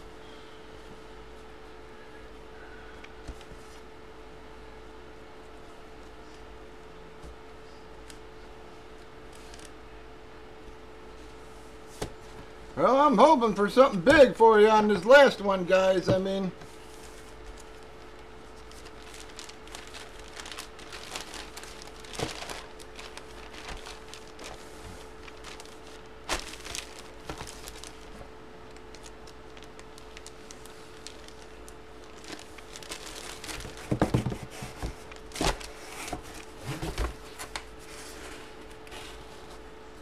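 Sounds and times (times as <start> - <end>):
plastic bag crinkling: 16.8 - 37.8.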